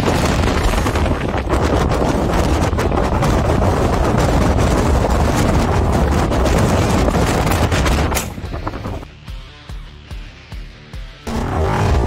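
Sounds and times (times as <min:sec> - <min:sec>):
wind buffeting microphone: 0:00.0 - 0:09.1
vehicle driving rumble: 0:11.2 - 0:12.0.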